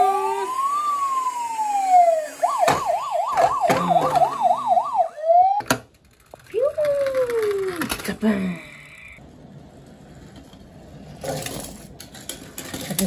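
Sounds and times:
toy siren wailing and yelping: 0.0s - 5.6s.

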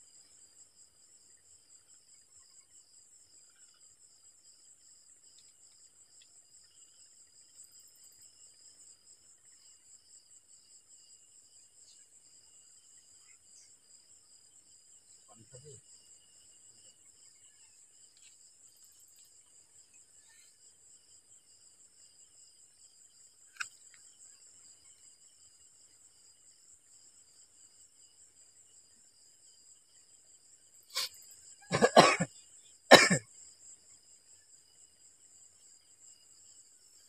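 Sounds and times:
crickets chirping: 0.0s - 37.0s
person coughing: 31.7s - 32.3s, 32.9s - 33.2s.

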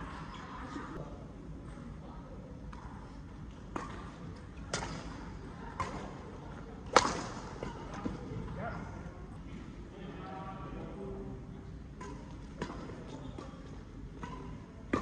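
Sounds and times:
rackets hitting shuttlecock: 3.7s - 5.2s, 6.8s - 8.2s, 14.2s - 15.0s.

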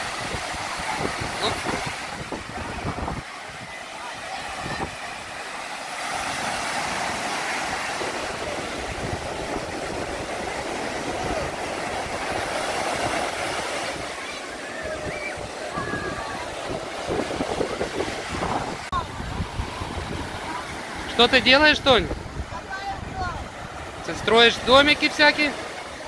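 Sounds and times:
surf washing onto beach: 0.0s - 26.0s
wind gusts on microphone: 0.0s - 26.0s
bathers' voices: 0.3s - 26.0s.

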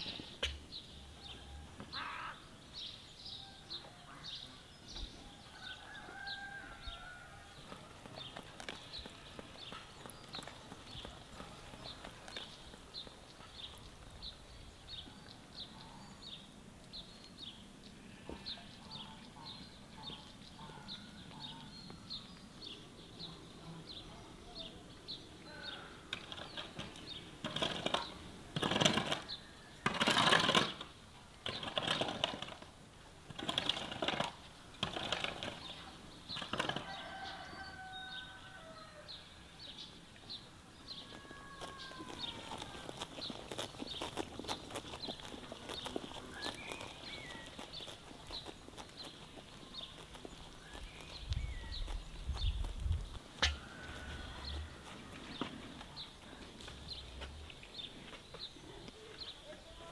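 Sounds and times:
small bird chirping: 39.7s - 59.9s
garden tool scraping ground: 40.8s - 58.7s.

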